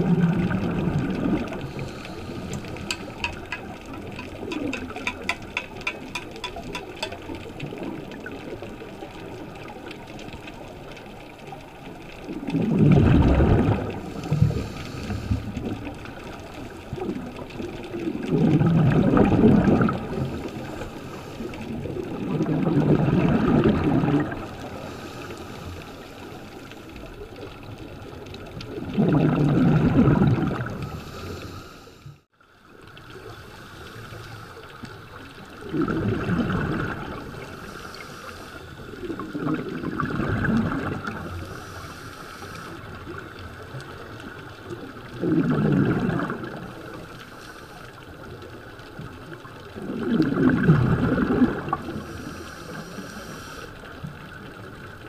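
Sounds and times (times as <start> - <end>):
underwater exhaust bubbles: 0.0 - 55.0
faint rapid clicks: 1.6 - 7.5.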